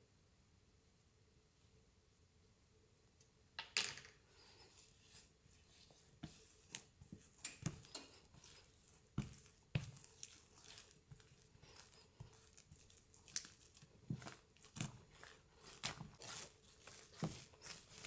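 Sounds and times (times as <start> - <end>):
hands squishing and patting dough: 4.2 - 18.0.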